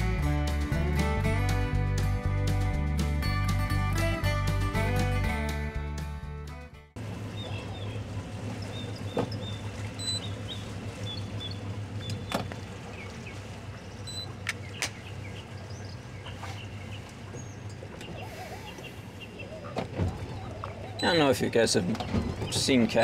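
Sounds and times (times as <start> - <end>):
boat engine idling: 6.9 - 23.0
small birds chirping: 7.2 - 23.0.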